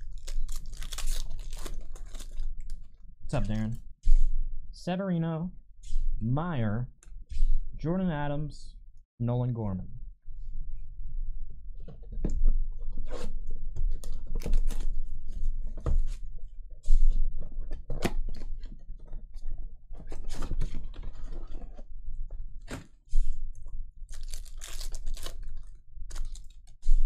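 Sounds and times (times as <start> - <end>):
foil packs crinkling: 0.0 - 2.8, 24.1 - 26.8.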